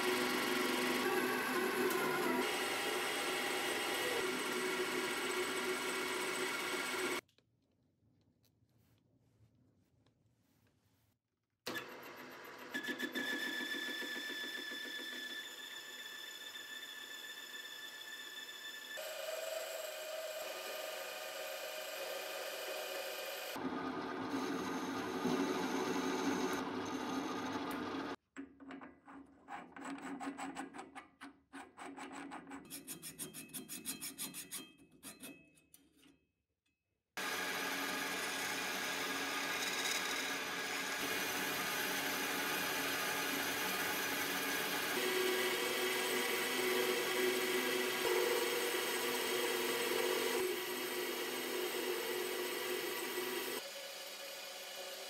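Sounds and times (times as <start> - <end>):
lathe turning cut: 0.0 - 7.2, 19.0 - 28.2, 37.2 - 55.0
sandpaper rasping on spinning part: 32.5 - 35.4.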